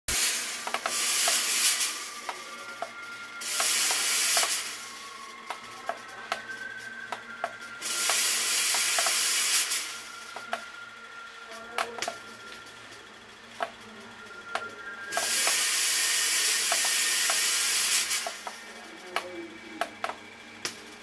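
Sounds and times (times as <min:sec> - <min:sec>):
loud hissing spray: 0:00.1 - 0:02.2, 0:03.4 - 0:04.9, 0:07.8 - 0:10.1, 0:15.1 - 0:18.5.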